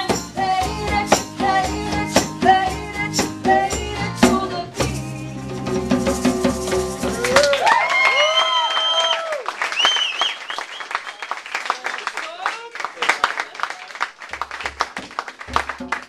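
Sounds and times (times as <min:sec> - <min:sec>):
group singing: 0:00.0 - 0:07.3
djembe beat: 0:00.0 - 0:07.5, 0:15.0 - 0:16.0
guitar: 0:00.0 - 0:07.5
voices whooping: 0:07.1 - 0:10.2.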